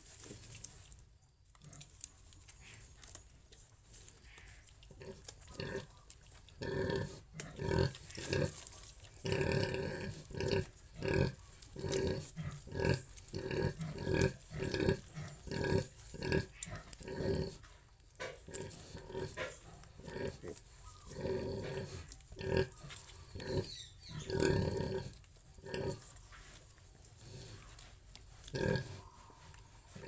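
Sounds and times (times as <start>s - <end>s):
pig grunting: 4.9s - 5.9s, 6.6s - 8.6s, 9.2s - 17.6s, 18.2s - 26.1s, 28.5s - 30.0s.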